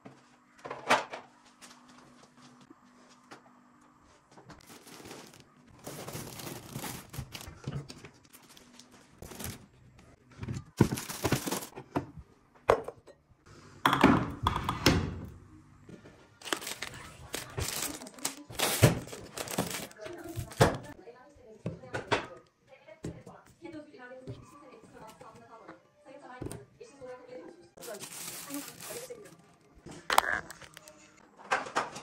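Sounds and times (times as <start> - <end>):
items thunking down: 4.6 - 8.4, 9.2 - 9.7, 10.3 - 12.9, 16.4 - 21.0, 27.8 - 32.0
plastic packaging crinkling: 4.6 - 9.7, 10.8 - 11.7, 16.4 - 20.9, 27.8 - 29.5, 30.1 - 30.9.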